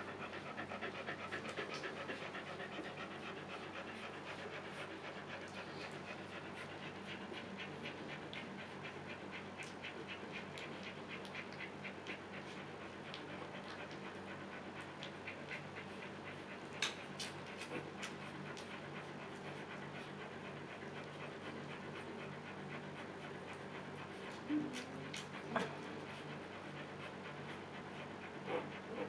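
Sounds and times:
dog panting: 0.0 - 29.0.

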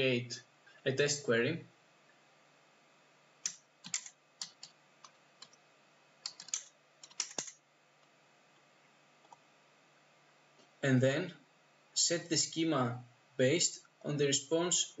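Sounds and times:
keyboard typing: 3.4 - 5.6, 6.2 - 7.6.

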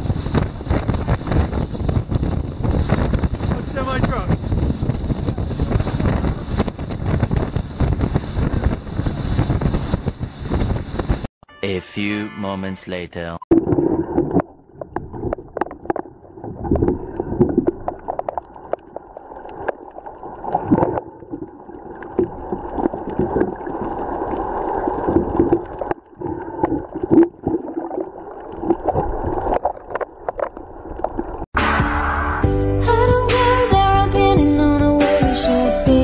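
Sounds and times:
underwater gurgling: 4.4 - 11.1, 13.5 - 31.5.

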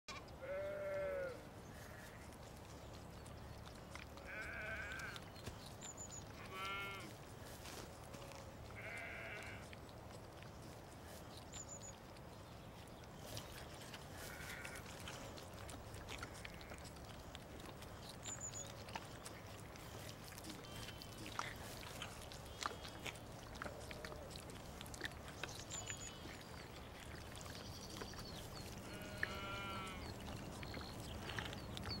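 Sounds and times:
lamb bleating: 0.2 - 2.2, 4.2 - 5.2, 6.4 - 7.1, 8.1 - 9.7, 14.2 - 15.2, 16.1 - 16.8, 28.8 - 30.1
lamb sucking from bottle teat: 1.7 - 32.0.

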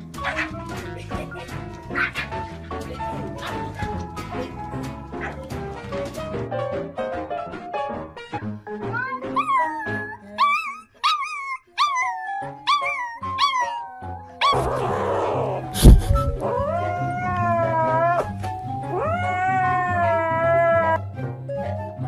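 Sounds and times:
small dog howling: 8.9 - 15.7, 16.3 - 21.0
sharp knock: 15.8 - 16.4.

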